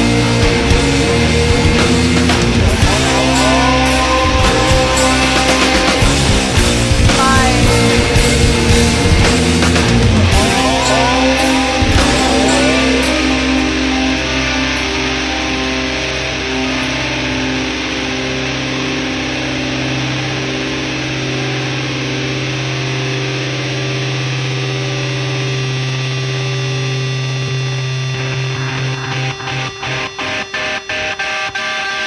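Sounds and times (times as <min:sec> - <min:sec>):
distorted guitar and bass drone: 0:00.0 - 0:32.0
person singing: 0:02.7 - 0:09.3, 0:10.3 - 0:15.7.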